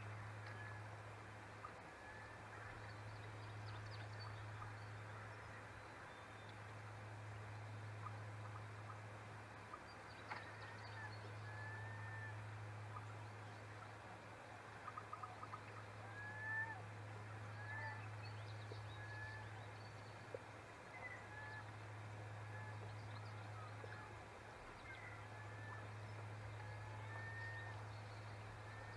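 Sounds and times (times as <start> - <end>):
steady low hum: 0.0 - 28.9
whistled bird calls: 10.4 - 12.4, 24.8 - 28.9.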